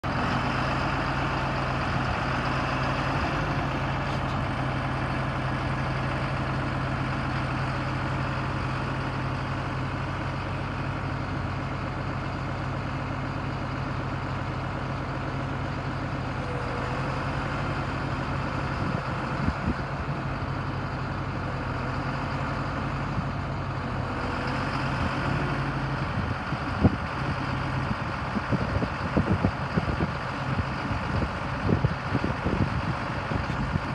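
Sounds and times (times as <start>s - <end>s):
tractor diesel engine idling: 0.0s - 33.9s.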